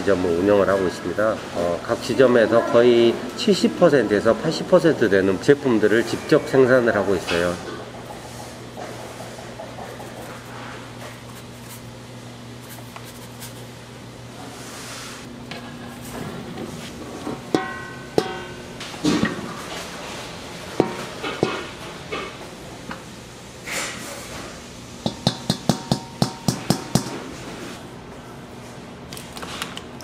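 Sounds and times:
metal pans clanking: 17.2s - 19.8s
ringing metal knocks: 17.5s - 18.8s.

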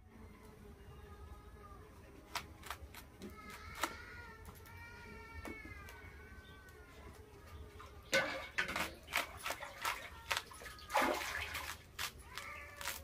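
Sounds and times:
knife crunching through banana flower: 8.6s - 13.0s.

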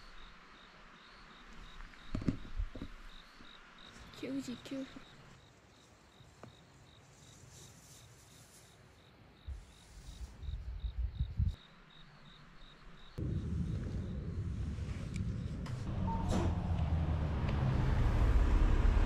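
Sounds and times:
insect chirping: 0.0s - 14.6s
irregular low rumbling: 13.2s - 19.0s
low vehicle rumble: 13.2s - 19.0s.

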